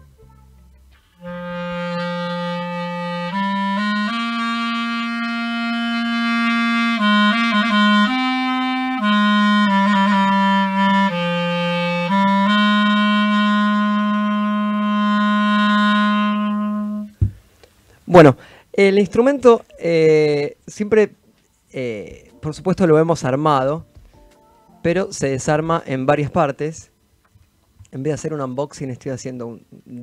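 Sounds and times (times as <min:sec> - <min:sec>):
solo clarinet slow melody: 0:01.2 - 0:17.2.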